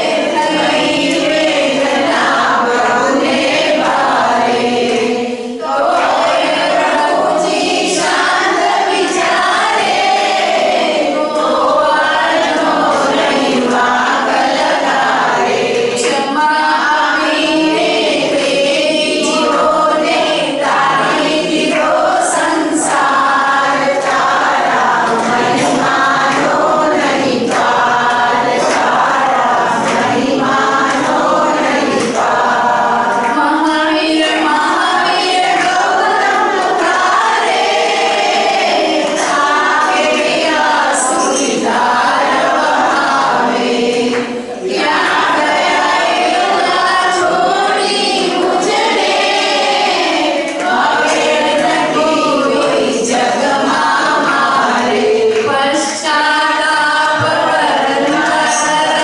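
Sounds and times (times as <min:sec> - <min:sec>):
congregation singing: 0:00.0 - 0:59.0
woman singing into a microphone: 0:16.0 - 0:17.8, 0:33.1 - 0:35.9, 0:54.8 - 0:59.0.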